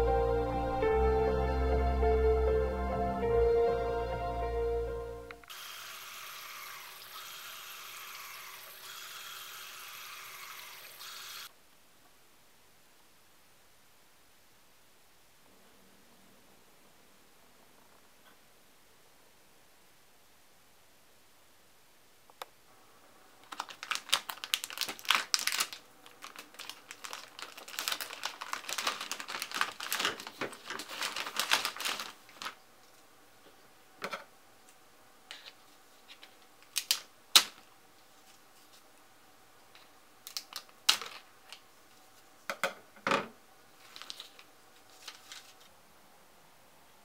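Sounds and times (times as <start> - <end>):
dried kelp snapping: 23.4 - 32.6
plastic packet crinkling: 23.4 - 32.6, 40.3 - 41.6, 43.8 - 45.7.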